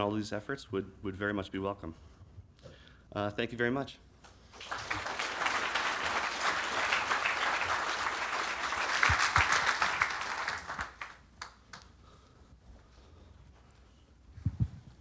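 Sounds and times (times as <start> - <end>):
audience applauding: 4.5 - 11.9.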